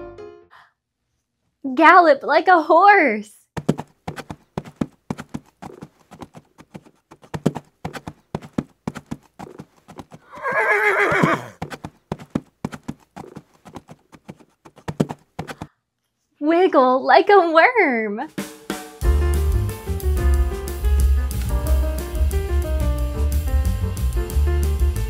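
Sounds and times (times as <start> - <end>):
galloping horse hoof beats: 3.6 - 15.7
horse whinny: 10.2 - 11.6.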